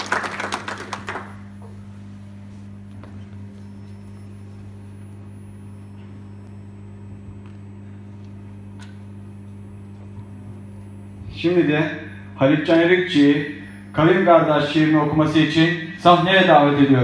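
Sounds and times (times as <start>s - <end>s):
applause: 0.0s - 1.5s
low electrical hum: 0.0s - 17.0s.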